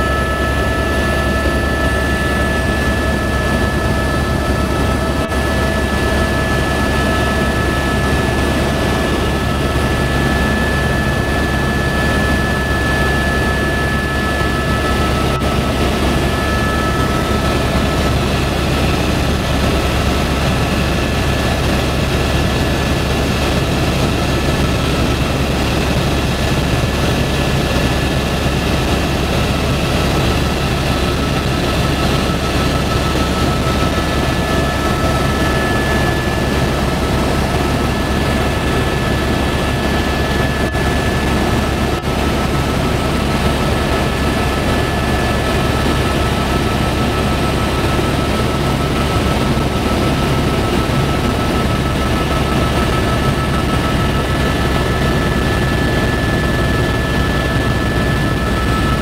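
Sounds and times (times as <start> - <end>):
helicopter rotor and engine drone: 0.0 - 59.0
high whine: 22.6 - 59.0.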